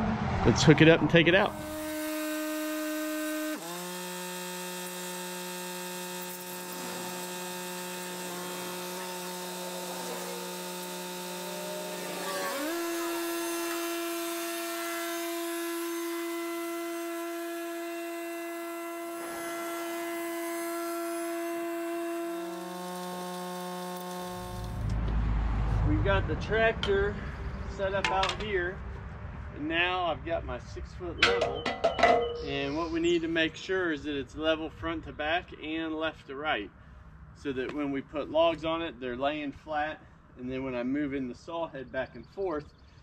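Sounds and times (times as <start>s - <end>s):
tractor engine high-pitched whine: 0.0s - 25.6s.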